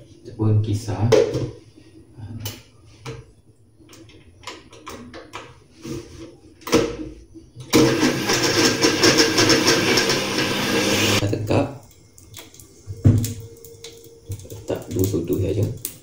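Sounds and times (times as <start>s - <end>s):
electric blender running: 7.7s - 11.2s.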